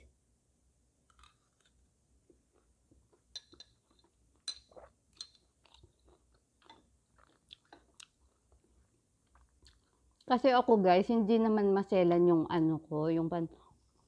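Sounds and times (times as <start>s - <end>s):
chewing and mouth clicks: 1.1s - 1.8s, 2.5s - 10.3s.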